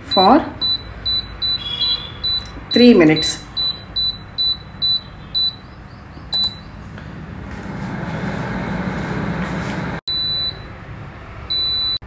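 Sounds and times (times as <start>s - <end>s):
long beep from fryer: 0.1s - 3.0s, 3.6s - 5.7s, 6.3s - 6.7s, 10.1s - 10.7s, 11.5s - 12.0s
air fryer touch panel beep: 0.1s - 6.8s, 10.1s - 10.7s, 11.5s - 12.0s
air fryer fan whirring: 3.6s - 12.0s.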